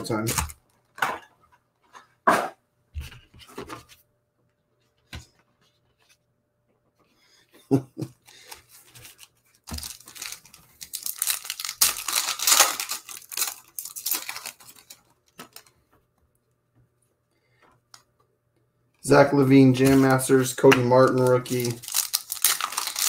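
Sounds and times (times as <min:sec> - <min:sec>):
foil wrapper tearing and crinkling: 0:09.1 - 0:15.7, 0:19.8 - 0:23.0.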